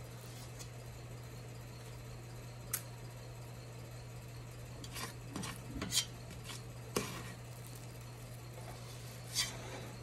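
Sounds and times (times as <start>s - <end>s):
metal scoop scraping a pot: 8.9s - 10.0s.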